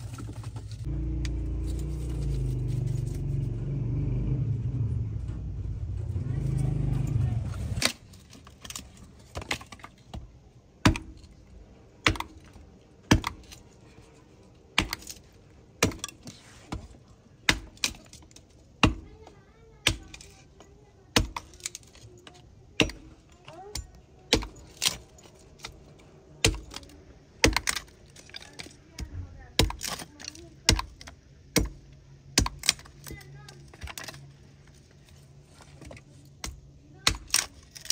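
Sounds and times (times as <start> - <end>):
hatchet chopping kindling: 6.7 - 11.4, 12.0 - 13.7, 14.7 - 22.1, 22.8 - 34.2, 35.8 - 37.9.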